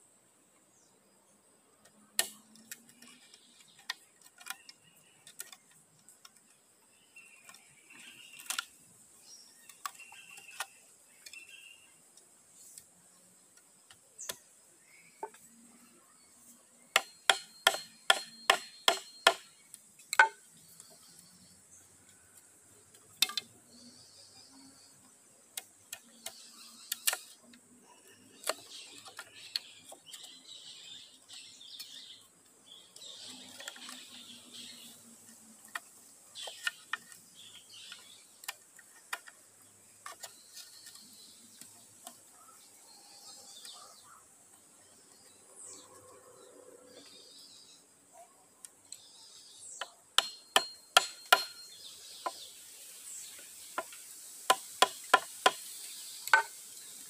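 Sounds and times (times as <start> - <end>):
taps on bamboo pole: 17.0 - 19.5, 20.1 - 20.4, 49.8 - 51.6, 53.8 - 55.6, 56.3 - 56.6
scraping on bamboo pole: 33.3 - 41.4.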